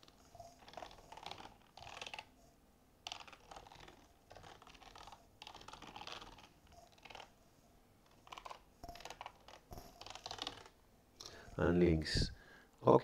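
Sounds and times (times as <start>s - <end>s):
typing on computer keyboard: 0.6s - 2.3s, 3.0s - 7.3s, 8.1s - 10.8s.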